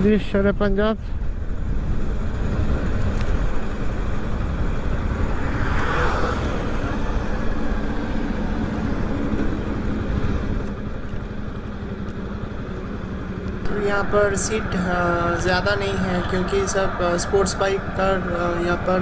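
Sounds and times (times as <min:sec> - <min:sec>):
wind rushing over microphone: 0:01.2 - 0:10.8, 0:13.6 - 0:19.0.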